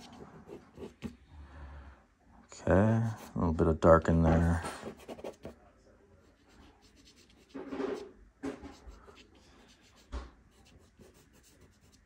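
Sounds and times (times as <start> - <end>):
pastel stick scratching on paper: 4.8 - 5.6, 6.3 - 12.0.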